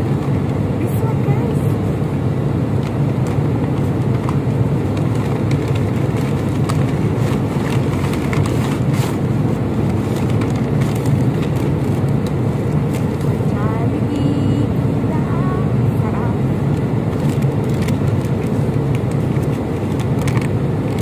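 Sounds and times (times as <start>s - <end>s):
airliner cabin drone: 0.0s - 21.0s
paper bag crinkling: 4.1s - 9.2s, 9.8s - 13.4s, 17.1s - 21.0s.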